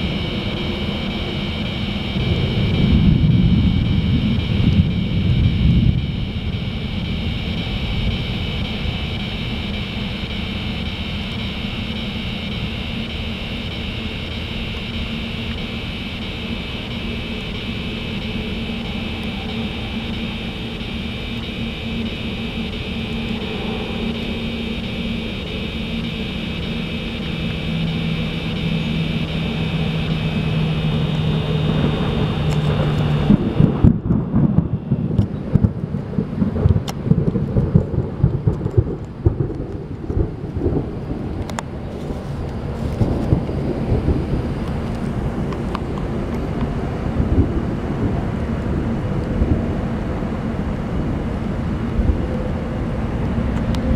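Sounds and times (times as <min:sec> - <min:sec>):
insects singing: 0:00.0 - 0:33.8
low rumble of highway traffic: 0:00.0 - 0:53.9.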